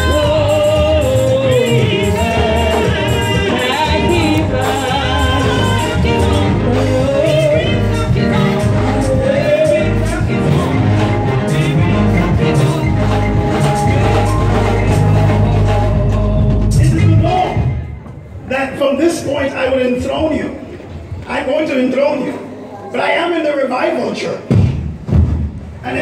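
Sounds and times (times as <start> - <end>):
gospel singing with band: 0.0 - 17.9.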